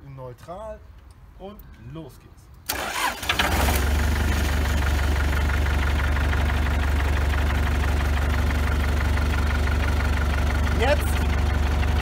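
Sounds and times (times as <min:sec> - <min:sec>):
forklift engine idling: 0:02.8 - 0:12.0.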